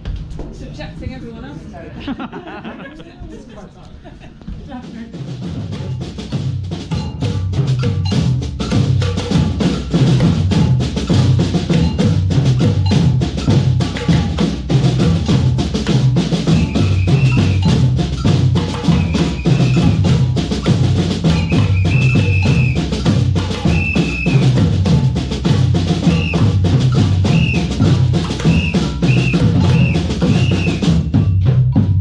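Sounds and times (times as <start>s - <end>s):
deep drums beating: 0.0s - 32.0s
rapid higher-pitched drum strokes: 4.4s - 32.0s
short high notes: 21.3s - 24.5s.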